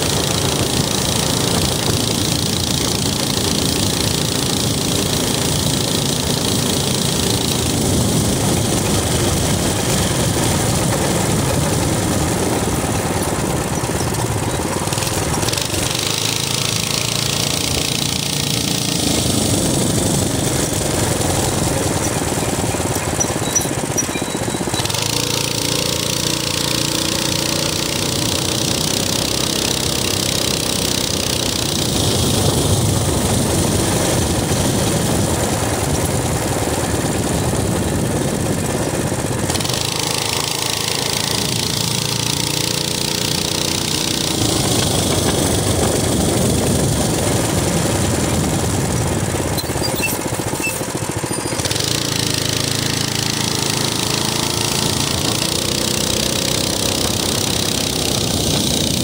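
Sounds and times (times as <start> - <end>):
wind noise: 0.0 - 16.1, 31.5 - 39.9, 44.1 - 51.9
minibike engine running: 0.0 - 59.0.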